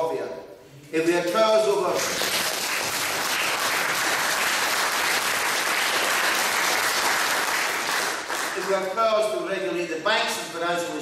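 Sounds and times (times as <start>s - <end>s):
audience applauding: 1.9s - 8.8s.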